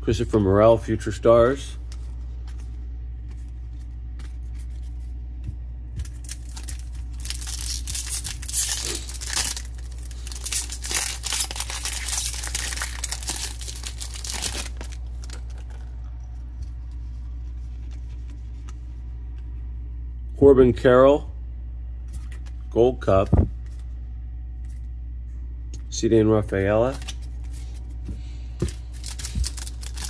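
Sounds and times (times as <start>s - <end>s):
steady low hum: 0.0s - 30.0s
foil wrapper tearing and crinkling: 6.0s - 15.7s, 28.7s - 30.0s.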